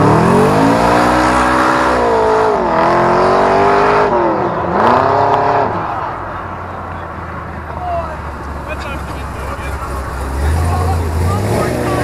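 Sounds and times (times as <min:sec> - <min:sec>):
car engine revving hard: 0:00.0 - 0:06.0, 0:10.2 - 0:12.0.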